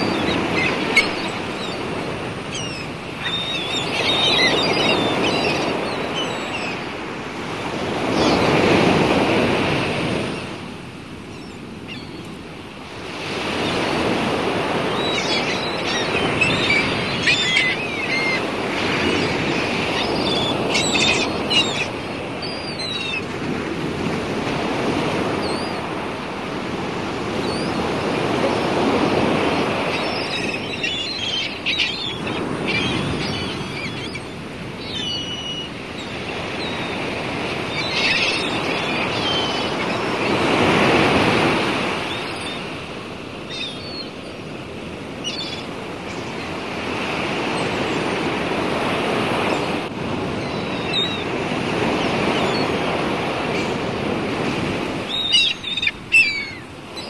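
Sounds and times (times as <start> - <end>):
bird calls: 0.0 - 7.0, 11.3 - 12.3, 13.3 - 23.4, 27.4 - 42.8, 43.4 - 44.4, 45.2 - 48.2, 50.4 - 53.8, 54.6 - 57.0
sea waves washing: 0.0 - 57.0.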